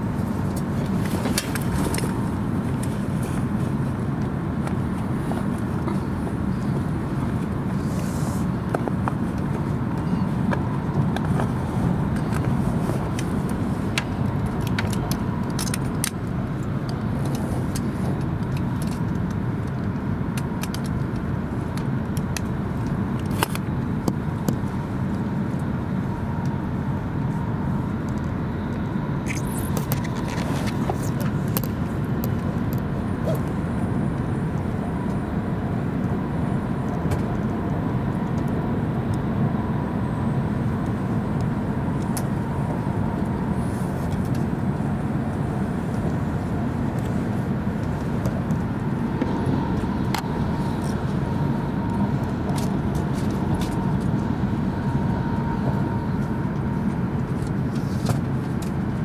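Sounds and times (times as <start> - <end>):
train cabin rumble: 40.2 - 59.0.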